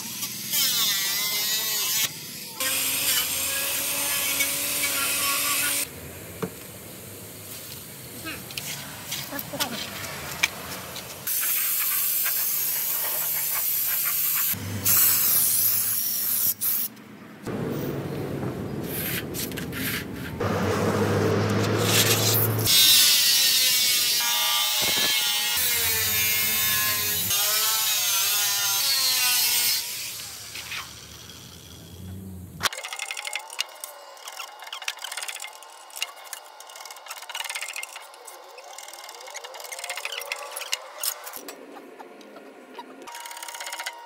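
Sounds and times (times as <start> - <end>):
angle grinder cutting steel: 0.0 - 5.9, 8.5 - 16.8, 20.4 - 41.6
broom sweeping on concrete: 18.8 - 20.4.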